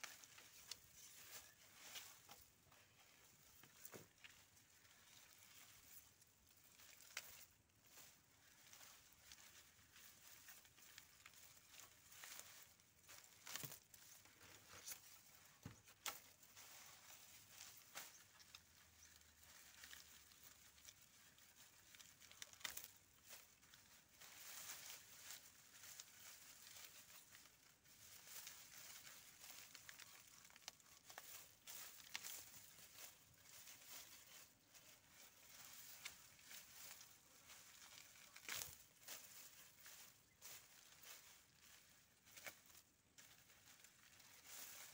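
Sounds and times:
dry stalks rustling and crackling: 0:00.0 - 0:44.9
stalks snapping: 0:21.9 - 0:23.0.

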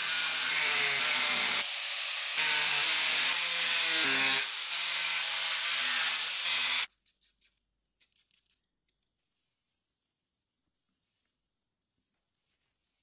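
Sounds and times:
angle grinder cutting: 0:00.0 - 0:06.9.

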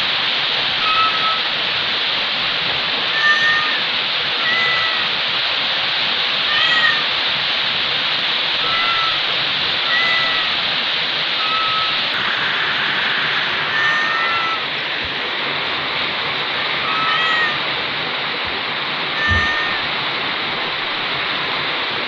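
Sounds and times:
loud steady hiss: 0:00.0 - 0:22.0
kitten mewing: 0:00.8 - 0:01.5, 0:03.0 - 0:03.8, 0:04.4 - 0:05.2, 0:06.4 - 0:07.2, 0:08.6 - 0:10.7, 0:11.3 - 0:15.2, 0:16.6 - 0:17.8, 0:19.1 - 0:20.0.

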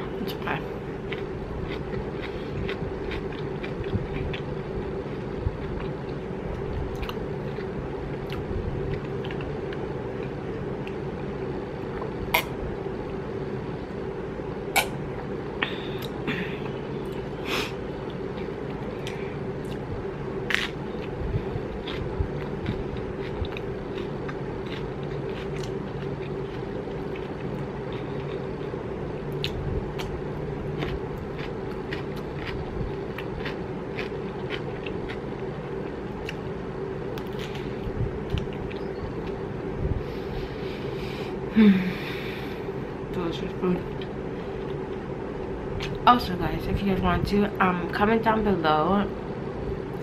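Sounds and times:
electric fan humming: 0:00.0 - 0:50.0
crunching and wet chewing: 0:01.0 - 0:11.0, 0:18.0 - 0:39.5.

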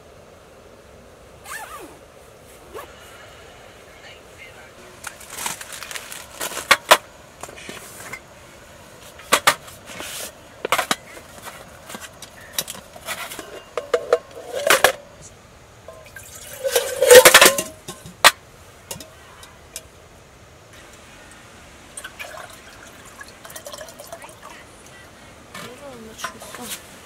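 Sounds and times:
metal pots clanking: 0:10.6 - 0:15.1, 0:15.9 - 0:19.9, 0:22.0 - 0:24.5, 0:25.5 - 0:26.8.

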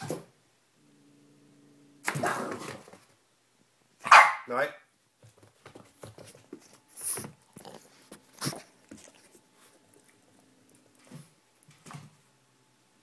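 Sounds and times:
knocks and scuffs: 0:05.2 - 0:07.4
dog making small noises: 0:06.7 - 0:11.6.

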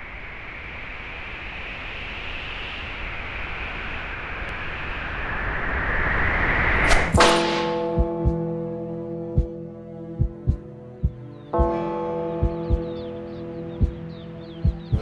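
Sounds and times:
steady rushing noise: 0:00.0 - 0:08.4.

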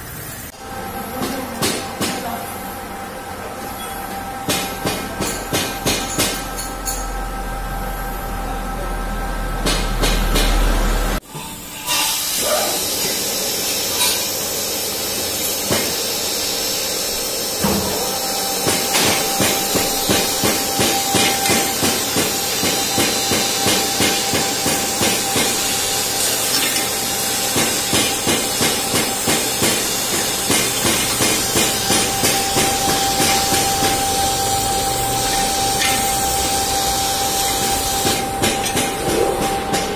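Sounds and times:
metal lathe running: 0:00.5 - 0:11.2, 0:11.8 - 0:39.9
steady whine: 0:13.4 - 0:39.9.

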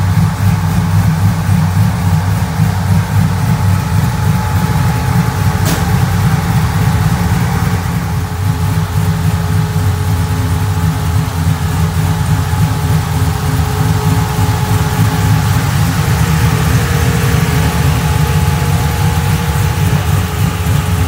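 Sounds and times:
truck engine idling: 0:00.0 - 0:21.0
single click: 0:05.7 - 0:05.9.

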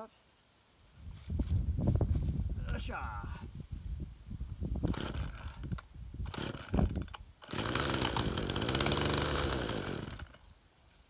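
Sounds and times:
chainsaw pull-start coughing: 0:04.9 - 0:05.6, 0:06.3 - 0:10.4
chainsaw engine running: 0:04.9 - 0:10.4.

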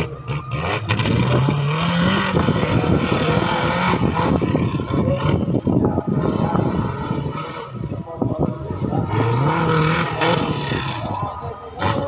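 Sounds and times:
off-road vehicle engine revving: 0:00.0 - 0:12.0.

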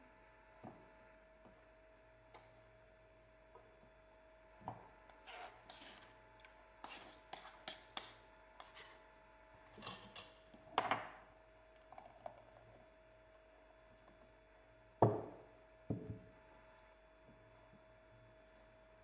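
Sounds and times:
metal spoon scraping a sieve: 0:05.1 - 0:06.2, 0:06.8 - 0:09.0.

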